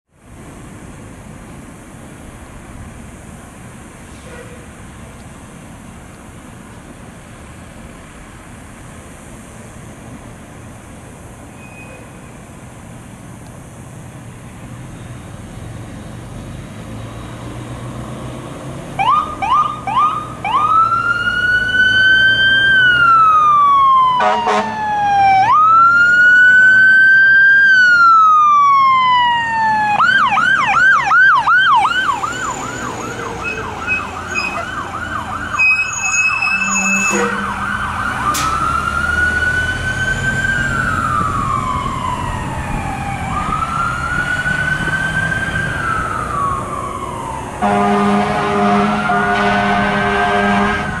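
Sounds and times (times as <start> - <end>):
electronic siren wailing and yelping: 19.0 - 47.4
short horn blast: 24.2 - 24.7, 36.2 - 37.6, 47.6 - 51.0.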